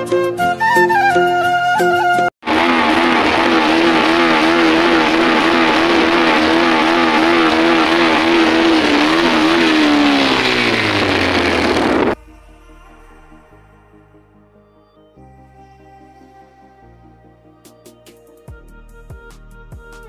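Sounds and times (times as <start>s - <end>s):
motorcycle engine: 2.4s - 12.2s
wind and road noise: 2.4s - 12.2s.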